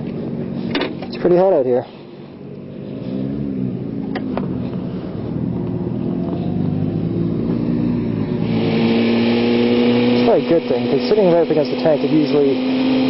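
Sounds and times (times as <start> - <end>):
motorcycle engine at low revs: 0.0 - 13.0
rushing hiss: 8.3 - 13.0.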